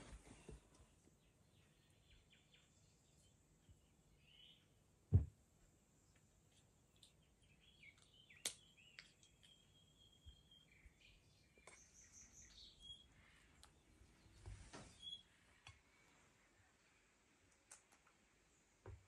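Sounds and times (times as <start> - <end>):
bird chirps and calls: 1.3 - 4.7, 6.9 - 13.4, 14.2 - 15.4.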